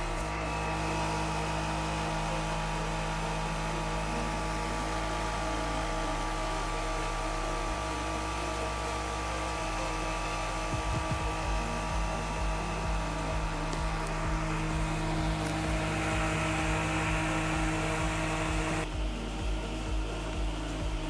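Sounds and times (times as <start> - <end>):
electric fan humming: 0.0 - 21.0.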